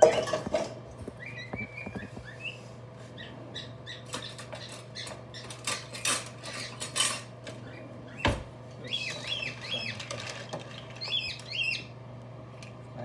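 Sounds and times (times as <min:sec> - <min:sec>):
steady low hum: 0:00.0 - 0:13.0
bird chirping: 0:01.2 - 0:06.8, 0:07.6 - 0:11.9.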